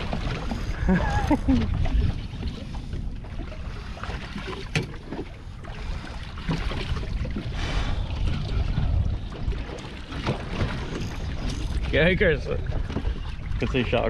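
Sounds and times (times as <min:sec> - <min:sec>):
wind and water rumble: 0:00.0 - 0:14.0.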